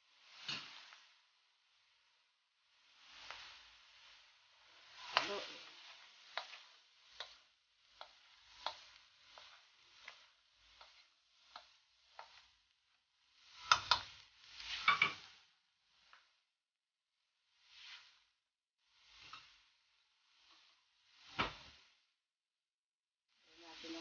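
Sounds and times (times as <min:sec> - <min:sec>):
meat sizzling in a pan: 0:00.0 - 0:16.5, 0:17.4 - 0:22.1, 0:23.4 - 0:24.0
wooden spatula scraping a wok: 0:00.1 - 0:01.1, 0:02.7 - 0:16.4, 0:17.5 - 0:18.3, 0:18.9 - 0:22.1, 0:23.5 - 0:24.0.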